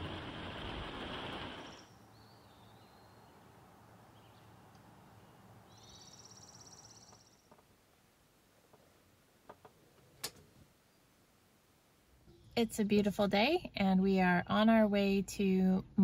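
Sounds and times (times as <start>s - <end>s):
heavy rain hissing: 0.0s - 1.9s
faint bird chirps: 1.6s - 3.5s, 4.1s - 7.5s.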